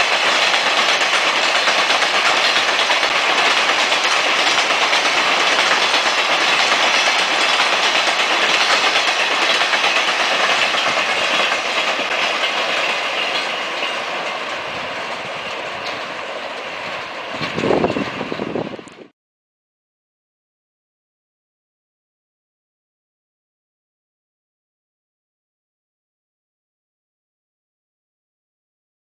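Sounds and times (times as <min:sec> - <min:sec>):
train wagons rumbling and clattering: 0:00.0 - 0:19.1.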